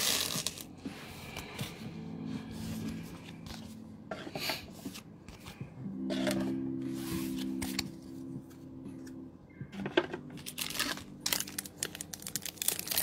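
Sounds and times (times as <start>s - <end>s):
cards sliding on a playmat: 6.8s - 7.7s.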